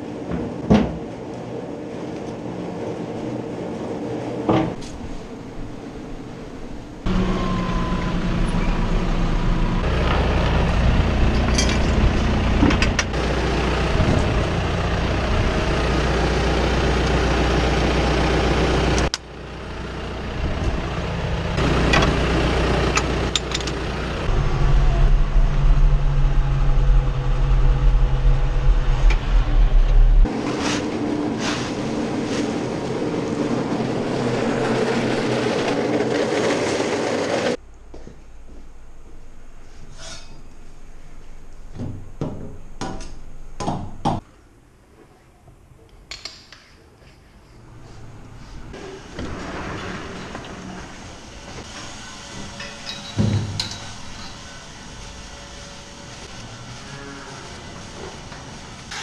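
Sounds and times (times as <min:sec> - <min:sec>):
tractor diesel engine running: 0:06.4 - 0:30.4
engine knocks: 0:07.1 - 0:16.6.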